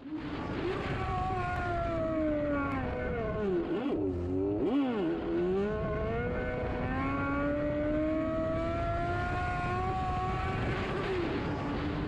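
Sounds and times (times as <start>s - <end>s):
motorcycle engine: 0.0s - 12.0s
wind rushing over microphone: 5.3s - 12.0s.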